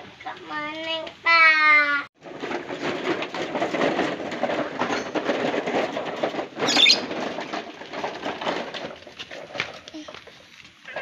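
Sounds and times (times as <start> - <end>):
plastic toy truck rattling on stones: 2.2 - 11.0.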